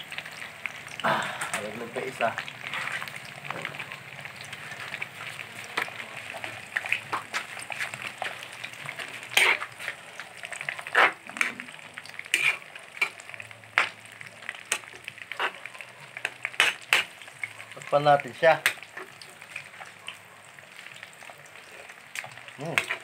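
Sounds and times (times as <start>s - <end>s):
food frying in a wok: 0.0s - 23.0s
metal spatula scraping a wok: 7.6s - 13.9s, 14.6s - 15.6s, 16.2s - 17.2s, 22.8s - 23.0s.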